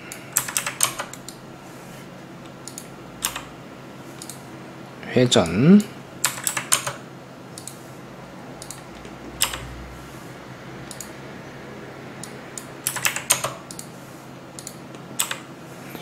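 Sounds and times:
keyboard typing: 0:00.3 - 0:01.4, 0:02.5 - 0:03.5, 0:06.2 - 0:07.8, 0:08.6 - 0:09.7, 0:10.8 - 0:11.1, 0:12.2 - 0:13.9, 0:14.6 - 0:15.5.

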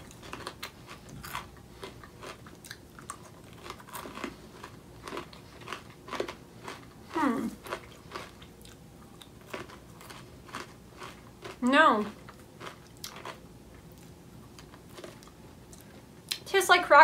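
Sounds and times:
popcorn crunching: 0:00.0 - 0:16.4
person humming: 0:07.2 - 0:07.6.

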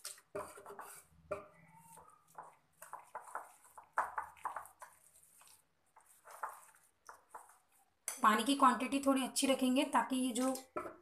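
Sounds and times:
whisk scraping in ceramic bowl: 0:00.0 - 0:07.9.

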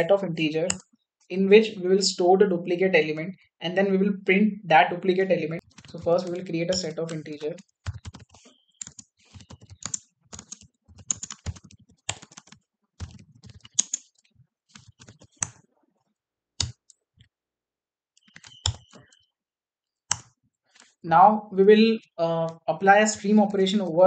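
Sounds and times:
computer keyboard typing: 0:05.6 - 0:15.6, 0:16.6 - 0:17.0, 0:18.2 - 0:19.2, 0:20.1 - 0:20.9.

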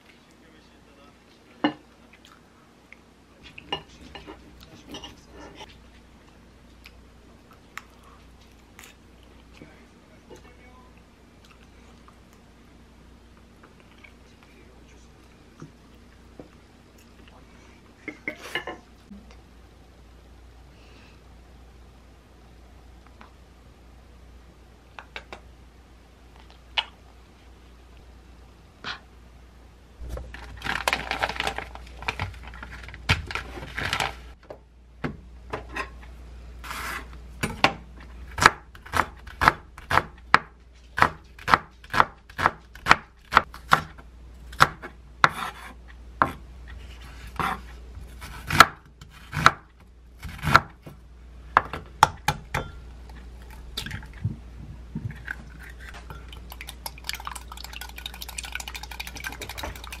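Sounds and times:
plastic food package crinkling: 0:30.2 - 0:34.3
knife chopping on wooden board: 0:47.4 - 0:49.6
whisk beating eggs in glass: 0:56.5 - 1:00.0.

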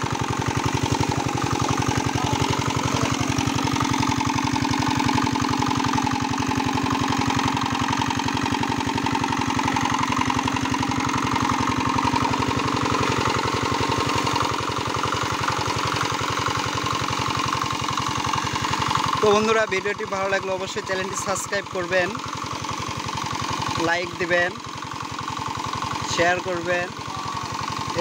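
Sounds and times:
diesel engine knocking: 0:00.0 - 0:28.0
water splashing onto pond: 0:11.3 - 0:19.2.

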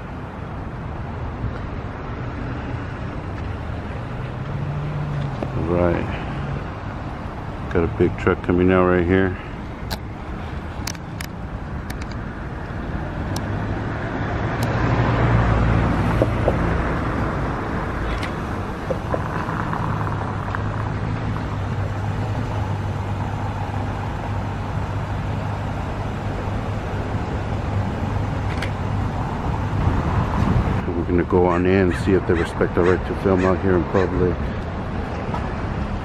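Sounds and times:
truck engine passing by: 0:01.9 - 0:09.6, 0:12.3 - 0:36.0.

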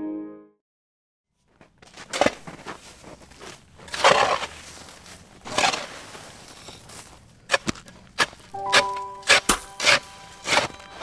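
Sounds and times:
scraping through loose stone: 0:03.8 - 0:11.0
pick chipping rock: 0:05.4 - 0:11.0.

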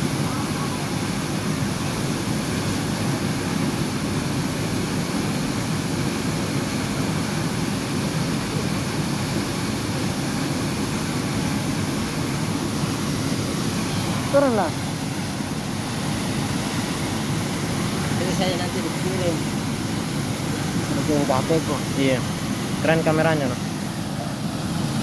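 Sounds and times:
waterfall rushing: 0:00.0 - 0:25.0.

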